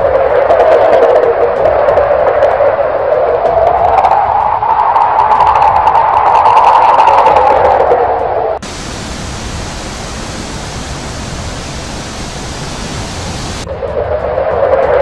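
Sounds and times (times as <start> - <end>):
steady hiss of noise: 8.6 - 13.7.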